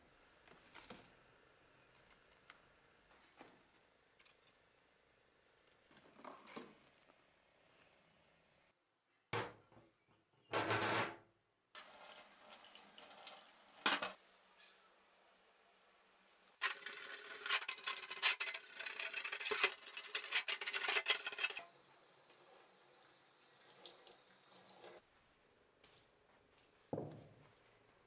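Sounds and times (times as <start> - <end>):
water running: 11.8 - 14.2, 16.3 - 25.0
brush scrubbing metal: 16.6 - 21.8
splashing and handling in a sink: 16.6 - 25.0.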